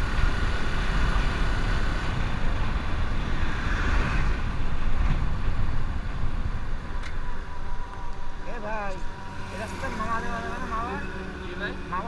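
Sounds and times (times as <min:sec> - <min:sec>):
wind rush on microphone: 0:00.0 - 0:09.3
truck passing: 0:00.0 - 0:12.0.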